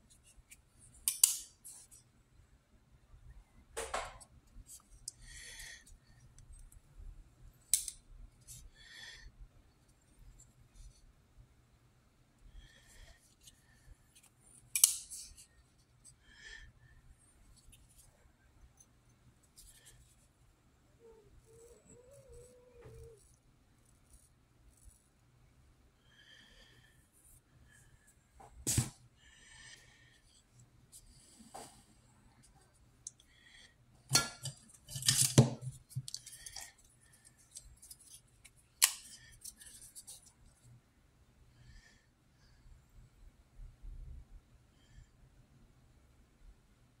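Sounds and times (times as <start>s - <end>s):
folding knife clicks: 1.1s - 1.5s, 14.7s - 15.1s.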